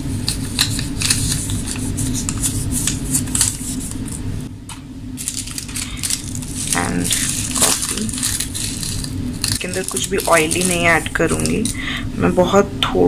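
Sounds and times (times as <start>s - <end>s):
steady low hum: 0.0s - 13.0s
paper sachets crinkling: 0.3s - 4.2s, 5.2s - 11.9s.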